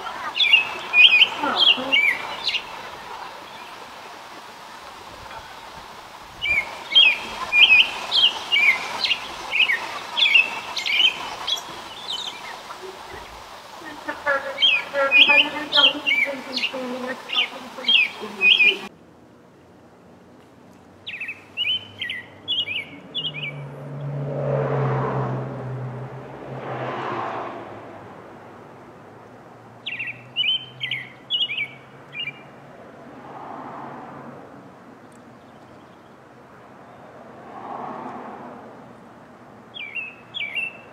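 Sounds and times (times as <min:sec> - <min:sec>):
robin singing: 0:00.0 - 0:04.1, 0:06.3 - 0:18.9, 0:21.0 - 0:24.1, 0:29.8 - 0:32.6, 0:35.0 - 0:37.1, 0:39.6 - 0:40.9.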